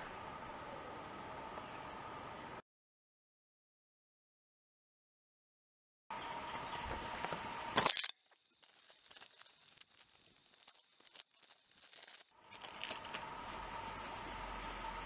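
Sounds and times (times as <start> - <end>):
plastic packaging crinkling: 7.8 - 13.2
plastic ripping: 7.8 - 13.2.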